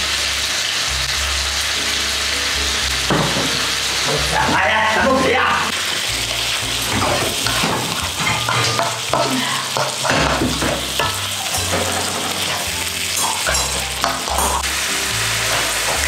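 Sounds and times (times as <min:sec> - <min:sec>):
low background music: 0:00.0 - 0:16.0
vegetables sizzling in wok: 0:00.0 - 0:16.0
spatula scraping pan: 0:06.3 - 0:14.7.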